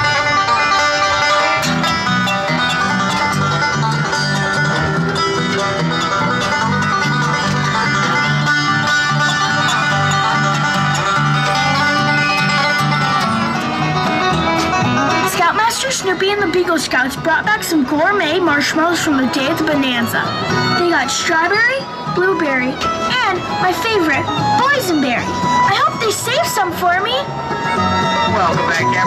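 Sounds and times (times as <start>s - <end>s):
bouncing bass line: 0.0s - 21.4s
banjo picking: 0.0s - 29.0s
guitar picking: 0.0s - 29.0s
toe-tapping beat: 0.0s - 29.0s.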